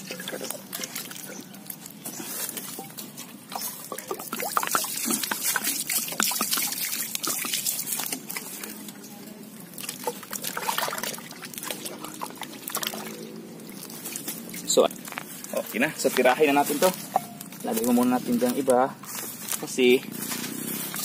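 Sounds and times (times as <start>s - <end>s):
water splashing in a pot: 0.0s - 14.8s.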